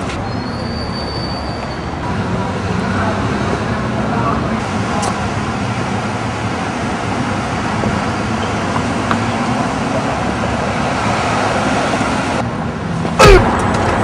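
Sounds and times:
street traffic: 0:00.0 - 0:14.0.

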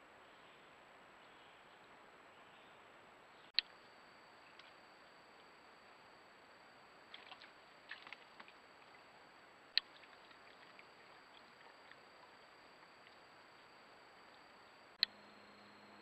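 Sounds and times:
faint steady hiss: 0:00.0 - 0:16.0
thin high whine: 0:03.2 - 0:16.0
soft ticks and rustles: 0:07.0 - 0:14.6.

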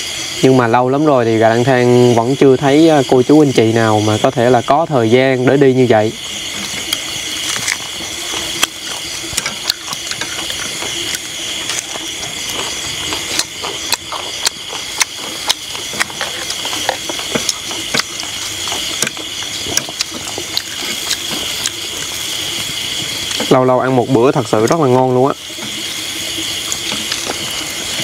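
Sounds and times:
steady high-pitched hiss: 0:00.0 - 0:28.0
utensils clicking against dishes: 0:08.6 - 0:12.0.

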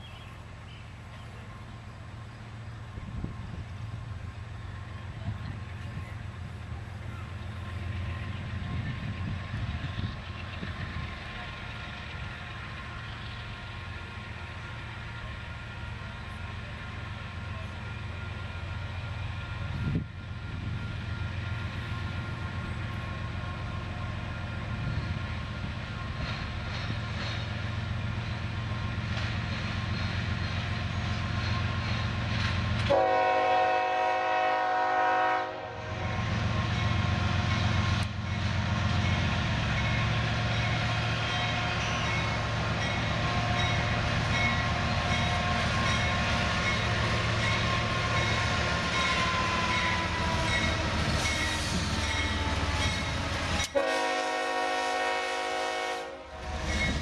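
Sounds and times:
diesel locomotive engines running: 0:00.0 - 0:57.0
locomotive air horn blast: 0:32.9 - 0:36.2, 0:53.7 - 0:57.0.

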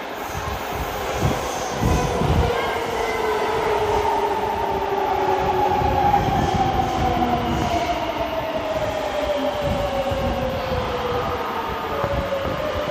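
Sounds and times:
train wheels rumbling on rails: 0:00.0 - 0:12.9.

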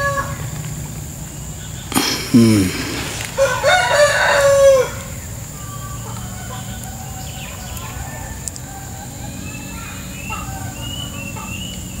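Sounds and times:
short falling call: 0:01.9 - 0:03.8
rooster crowing: 0:02.8 - 0:07.4.

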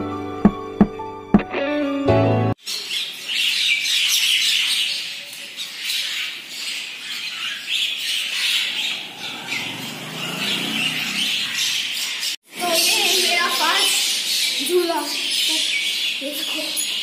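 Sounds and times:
birds chattering and squawking: 0:02.6 - 0:17.0.

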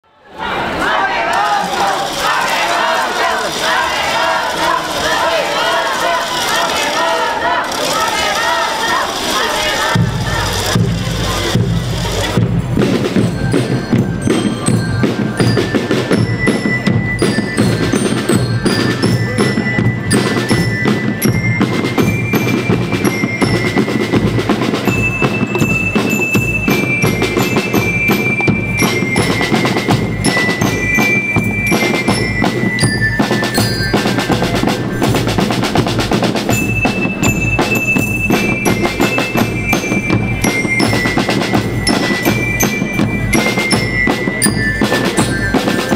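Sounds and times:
bell lyre melody: 0:09.8 - 0:45.9
snare and bass drums beat: 0:09.8 - 0:45.9.

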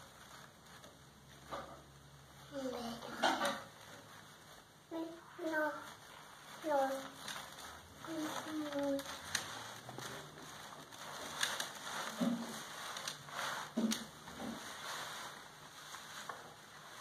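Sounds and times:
child's wordless vocal sounds: 0:08.0 - 0:09.2.

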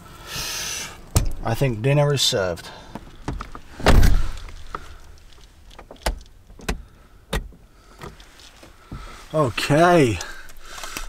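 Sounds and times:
van door shutting: 0:03.1 - 0:05.0.

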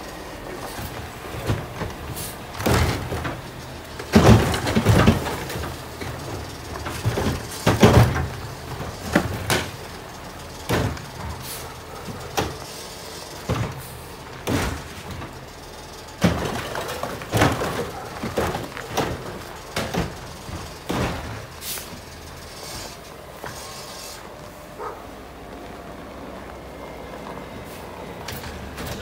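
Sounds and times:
clanks and bangs of carts: 0:00.0 - 0:29.0
truck engine running: 0:00.0 - 0:29.0.

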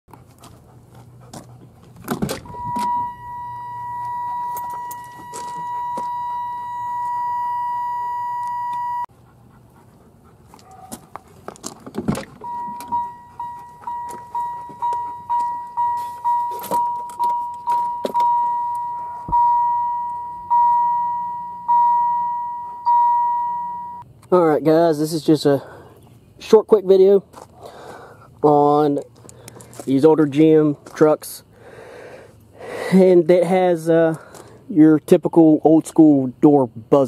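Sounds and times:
door buzzer steady tone: 0:02.5 - 0:09.1, 0:12.4 - 0:24.0
repeating chime: 0:02.6 - 0:09.1, 0:12.5 - 0:24.0.

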